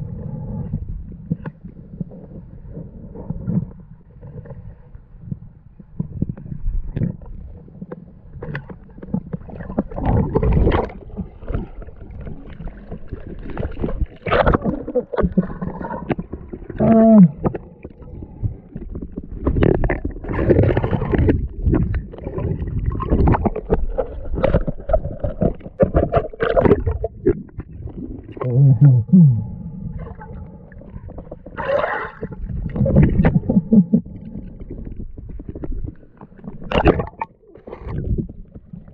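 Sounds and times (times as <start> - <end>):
muffled underwater water noise: 0.0 - 38.9
bubbles gurgling: 9.4 - 38.9.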